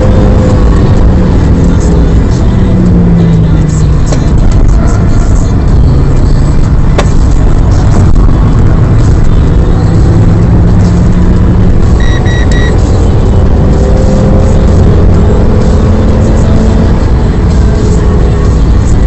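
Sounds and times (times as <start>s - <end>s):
car engine pulling hard: 0.0s - 19.0s
road and wind noise: 0.0s - 19.0s
short electronic beeps: 11.9s - 13.1s.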